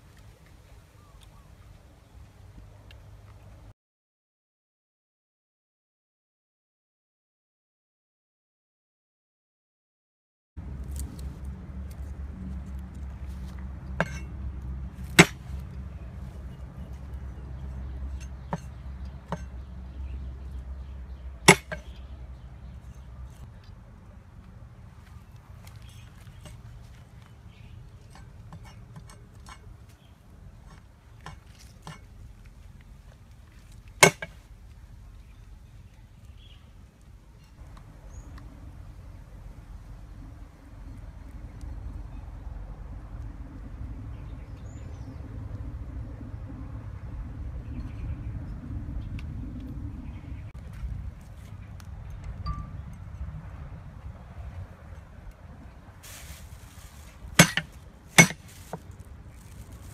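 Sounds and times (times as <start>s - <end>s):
cleaver chopping on wooden board: 14.0s - 14.2s, 15.2s - 15.5s, 21.5s - 21.9s, 34.0s - 34.3s, 57.4s - 58.8s.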